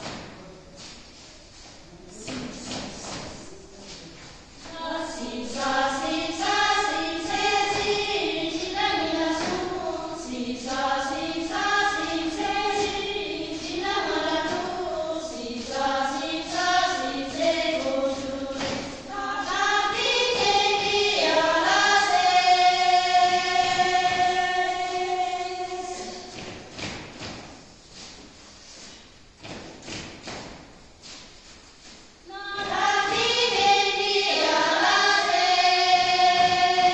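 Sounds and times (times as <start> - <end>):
feet stamping: 0.0 - 33.8
group of women singing: 4.6 - 27.0, 32.2 - 36.9.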